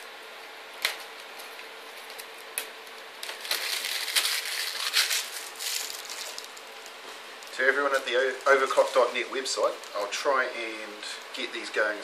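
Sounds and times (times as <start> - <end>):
plastic packaging crinkling: 0.8 - 10.2.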